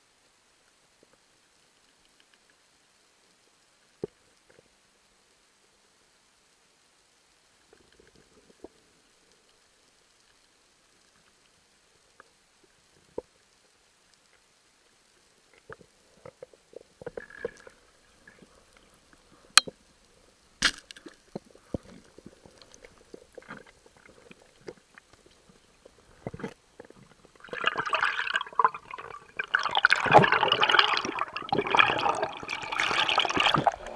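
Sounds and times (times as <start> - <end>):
air bubbles rushing: 25.8 - 33.9
underwater clicks and knocks: 26.2 - 28.0.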